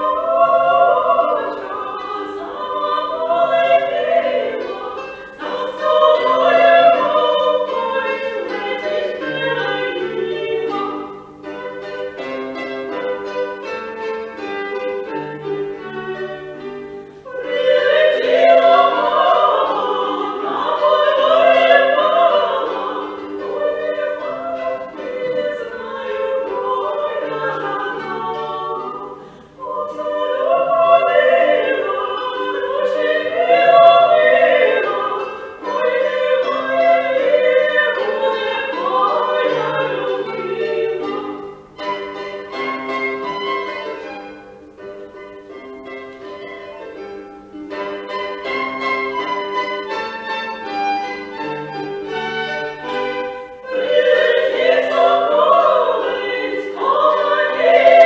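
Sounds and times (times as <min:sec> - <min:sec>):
woman singing: 0:00.0 - 0:12.0, 0:17.4 - 0:41.4
plucked lute: 0:00.0 - 0:58.0
violin: 0:00.0 - 0:58.0.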